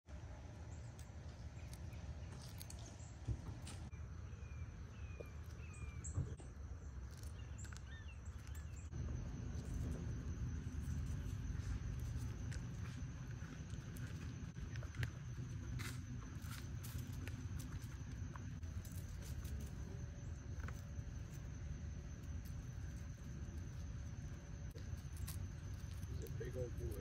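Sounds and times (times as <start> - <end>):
faint bird chirps: 3.9 - 10.0
high insect drone: 3.9 - 27.0
low rumble: 8.8 - 26.2.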